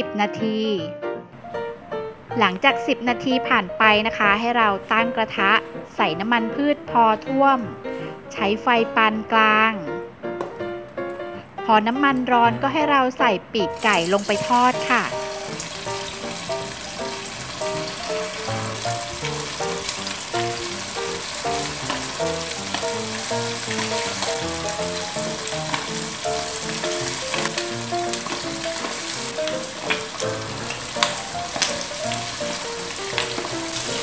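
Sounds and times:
soft background music: 0.0s - 34.0s
chicken deep-frying sizzle: 13.7s - 34.0s.

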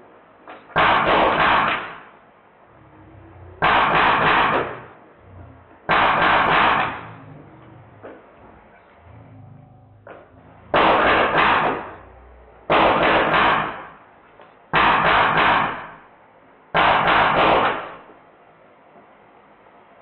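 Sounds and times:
air machine gun bursts: 16.8s - 18.0s.

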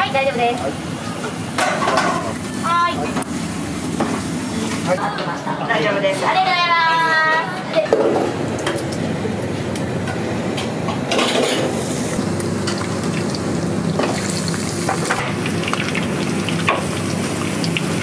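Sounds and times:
food sizzling in a pan: 0.0s - 5.0s, 11.7s - 18.0s
steady hum: 0.0s - 18.0s
utensils and pans clinking: 1.2s - 2.4s, 11.1s - 11.8s.

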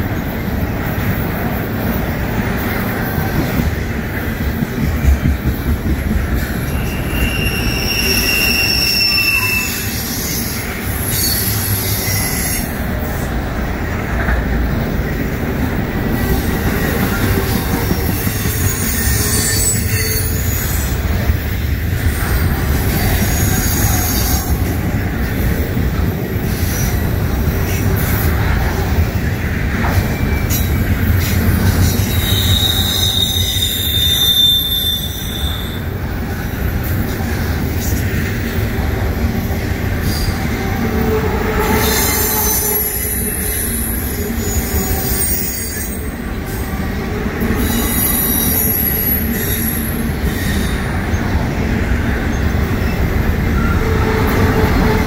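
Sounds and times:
train wheels rumbling on rails: 0.0s - 55.0s
high-pitched wheel squeals: 6.6s - 12.8s, 18.0s - 21.0s, 31.8s - 35.9s, 41.2s - 46.2s.

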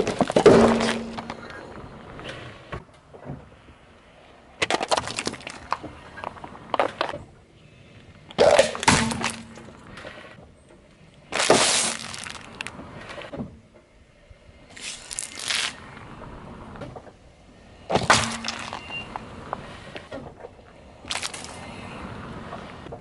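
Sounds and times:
tyre crushing snack packets: 11.4s - 12.7s, 21.1s - 21.6s.

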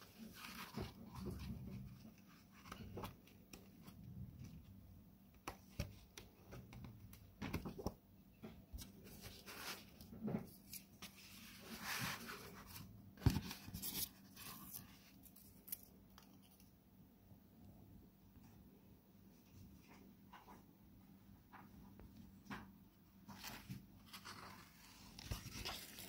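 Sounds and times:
book pages rustling: 0.0s - 16.7s, 23.3s - 26.0s.

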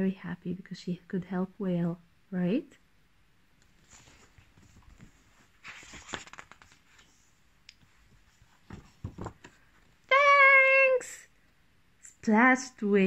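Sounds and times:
book page turning: 3.6s - 10.0s
small handling sounds: 3.6s - 10.1s.

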